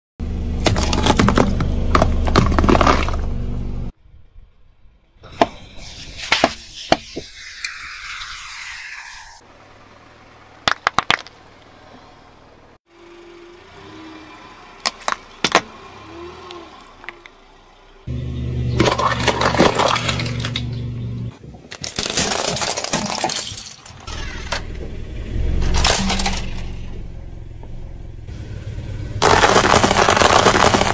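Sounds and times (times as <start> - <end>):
low engine hum: 0.2 - 5.3, 11.3 - 21.3, 24.1 - 29.8
plastic egg crunching under tyre: 0.6 - 3.2, 29.2 - 30.9
spray cans cracking under tyre: 21.7 - 24.0, 29.2 - 30.9
small balls crushed crackling: 29.2 - 30.9.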